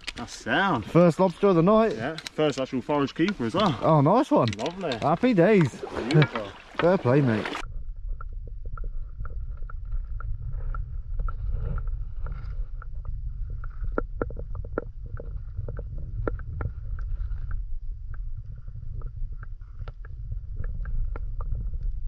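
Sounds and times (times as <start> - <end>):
underwater sharp clicks: 2.1 - 22.0
underwater low rumble: 5.8 - 22.0.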